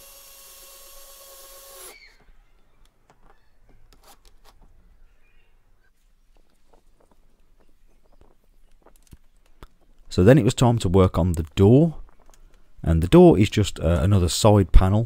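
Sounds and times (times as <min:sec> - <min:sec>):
cordless drill driving screw: 0:00.0 - 0:02.2
faint clicks and taps: 0:06.3 - 0:10.1.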